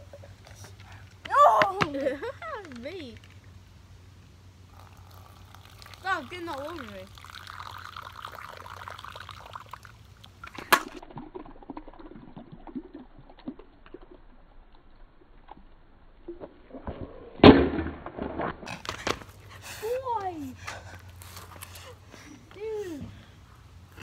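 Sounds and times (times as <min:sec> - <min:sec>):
soda pouring into a bowl: 0:04.7 - 0:10.1.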